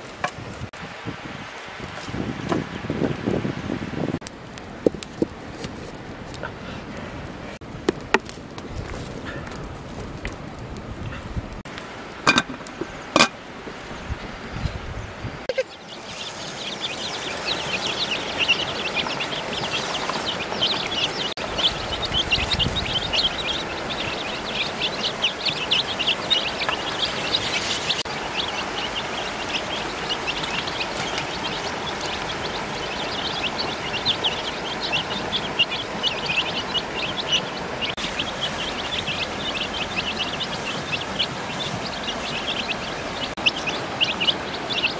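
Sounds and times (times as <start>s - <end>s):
ducklings and chicks peeping: 15.5s - 44.9s.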